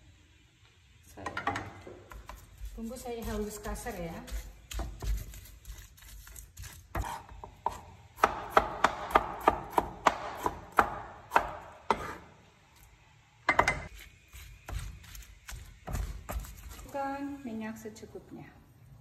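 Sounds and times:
knife chopping on wooden board: 1.4 - 12.3, 13.5 - 16.8.

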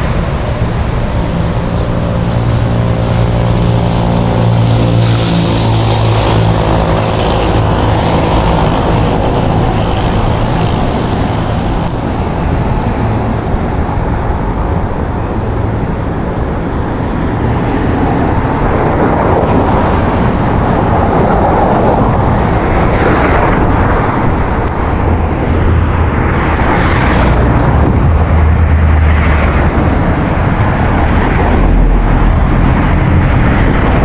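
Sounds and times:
rush of passing traffic: 0.0 - 34.0
vehicle engine hum: 0.0 - 34.0.

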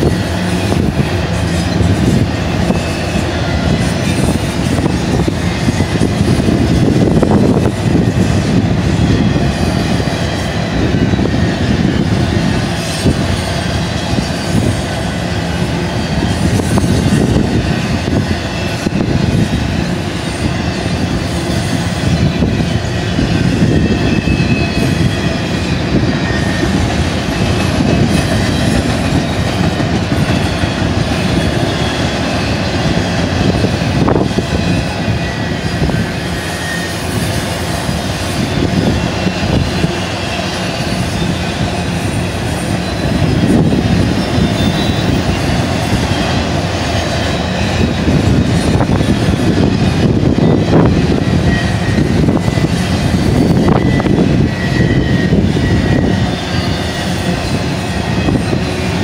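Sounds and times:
train wheels rumbling on rail: 0.0 - 59.0
faint high squeals: 20.2 - 46.5, 47.2 - 59.0.

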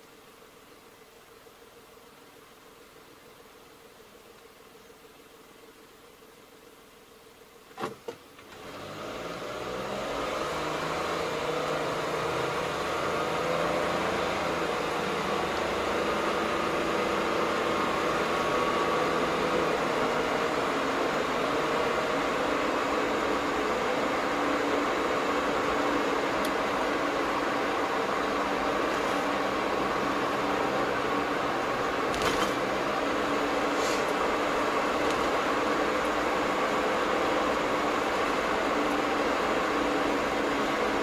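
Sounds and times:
car engine and road noise: 8.4 - 41.0.

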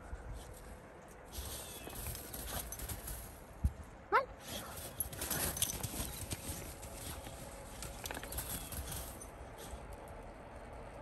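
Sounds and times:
footsteps crunching in snow: 4.4 - 9.8.

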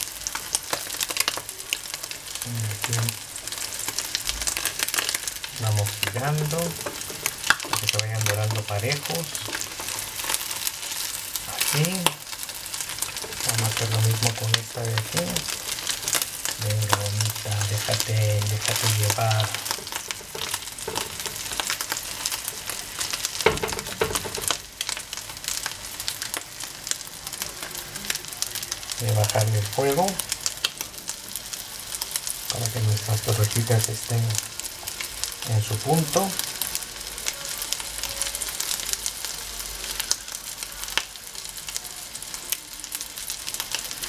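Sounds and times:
food sizzling in hot oil: 0.0 - 44.0
spatula scraping and knocking dish: 23.5 - 24.6.

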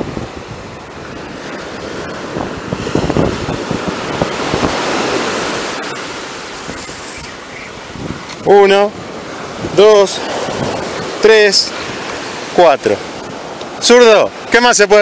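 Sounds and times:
wind buffeting microphone: 0.0 - 14.5
surf breaking on beach: 0.0 - 15.0.

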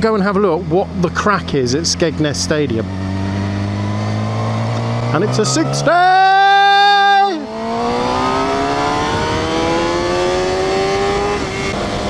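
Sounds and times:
motorcycle engine accelerating: 0.0 - 12.0
wind rush: 7.4 - 12.0.

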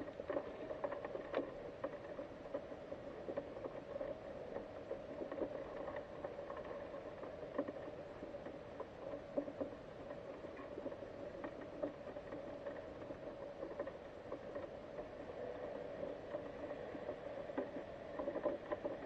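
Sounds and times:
faint underwater hum: 0.0 - 19.0
small irregular clicks: 0.0 - 19.0.

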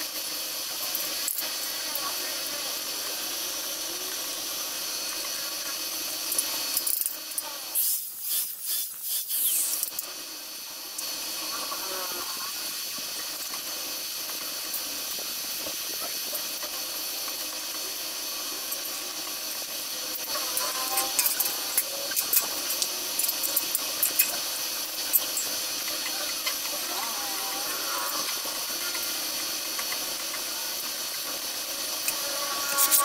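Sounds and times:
welding arc hissing and crackling: 0.0 - 33.0
angle grinder stopping: 20.0 - 33.0.

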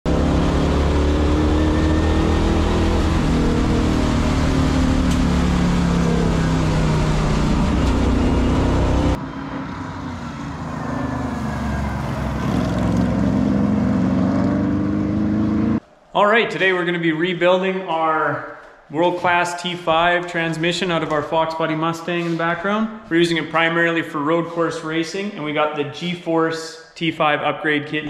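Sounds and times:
race car engine running hard: 0.1 - 15.8.

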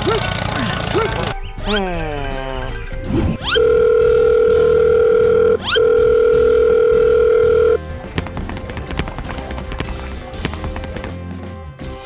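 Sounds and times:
long electronic beeps: 2.0 - 7.8.

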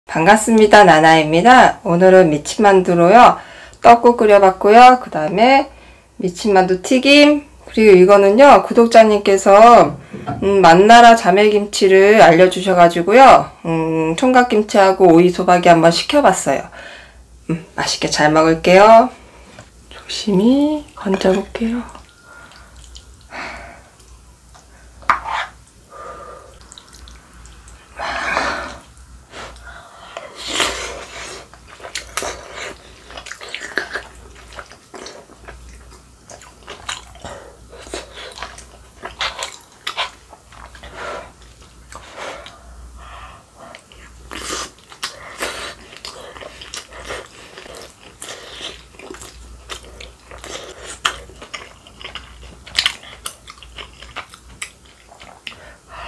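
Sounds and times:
broth dripping: 20.9 - 30.3
chewing: 21.9 - 23.3, 26.5 - 27.9, 29.5 - 42.6, 43.6 - 55.7.

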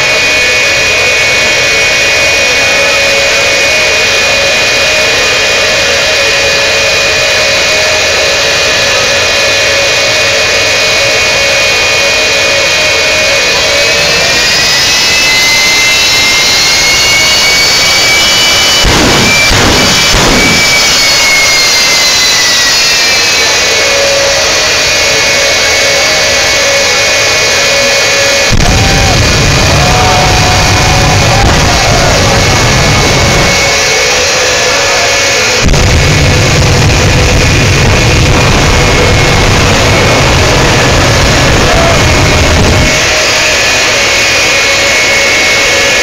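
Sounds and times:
high whine gliding down: 0.0 - 46.0
jet engines roaring: 0.0 - 46.0
deep rumble of flames: 16.4 - 21.5, 23.0 - 45.9.

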